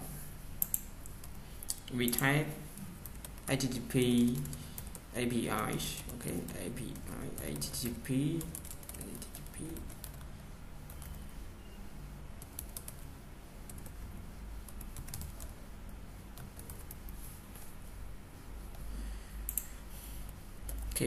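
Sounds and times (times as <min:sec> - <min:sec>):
low steady hum: 0:00.0 - 0:21.0
keyboard typing clicks: 0:00.6 - 0:02.2, 0:06.0 - 0:11.2, 0:12.4 - 0:13.0, 0:14.7 - 0:15.5, 0:19.4 - 0:21.0.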